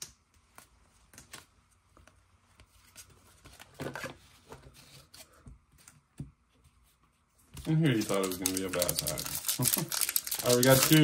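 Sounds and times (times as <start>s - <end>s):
trading cards flicking and rustling: 0.0s - 5.2s, 7.6s - 11.0s.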